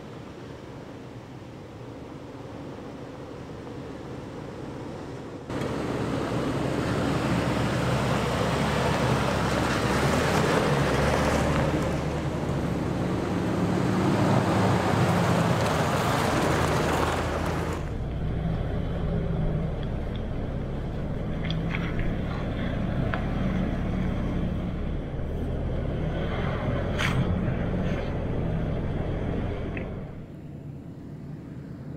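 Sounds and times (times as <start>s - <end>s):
car engines running: 0.0s - 31.9s
steady engine drone: 0.0s - 31.9s
tyres crunching over gravel: 14.9s - 17.9s.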